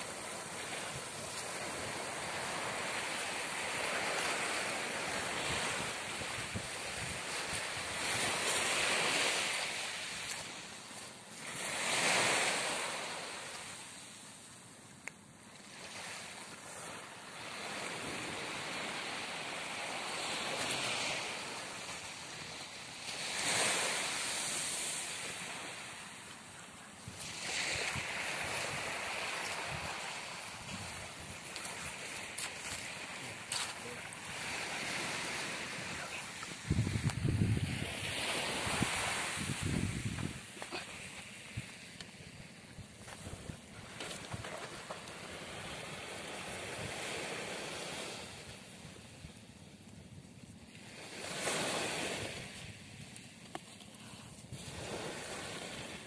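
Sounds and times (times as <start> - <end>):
small waves on pebbly beach: 0.0 - 14.5, 15.6 - 49.2, 50.7 - 56.0
wind buffeting microphone: 35.7 - 40.6.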